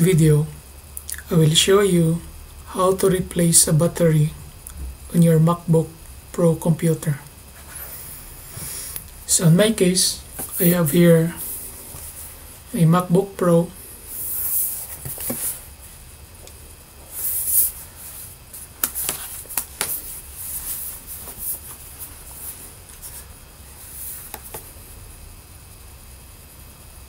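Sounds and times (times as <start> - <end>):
laptop handling rustling: 14.2 - 15.7, 17.1 - 24.7.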